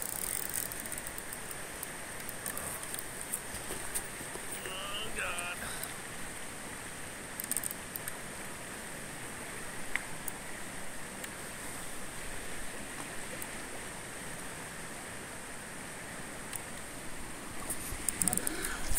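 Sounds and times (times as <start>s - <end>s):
faint clicks: 0.0s - 4.7s, 7.4s - 8.2s, 18.0s - 18.9s
river water rushing over gravel: 0.0s - 18.9s.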